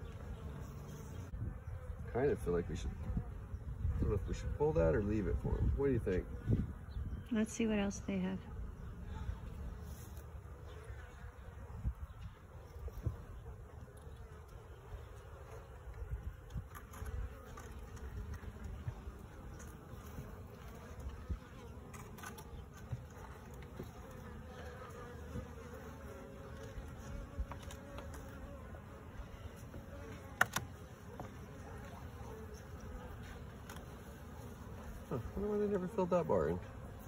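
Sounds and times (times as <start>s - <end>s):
honeybees buzzing: 0.0s - 37.0s
hive tool knocking on wood: 30.3s - 31.4s.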